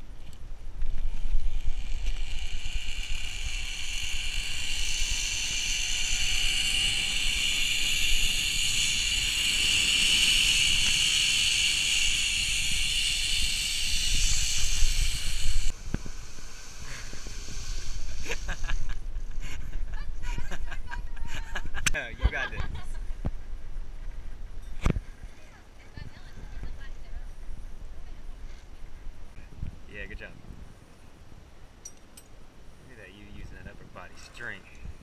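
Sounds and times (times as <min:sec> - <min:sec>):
zip line pulleys whirring: 0:00.8 - 0:19.7
wind rushing over microphone: 0:02.4 - 0:20.8, 0:21.6 - 0:31.4.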